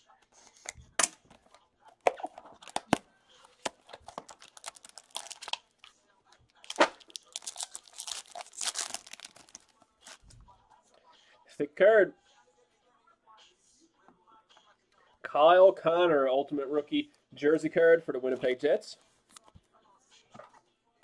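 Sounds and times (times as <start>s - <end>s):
foil wrapper tearing and crinkling: 3.6s - 5.9s, 6.5s - 10.3s.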